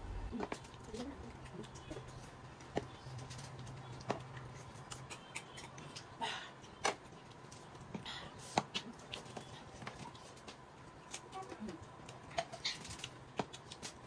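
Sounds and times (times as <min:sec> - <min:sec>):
mouth sounds of eating: 0:04.4 - 0:06.8.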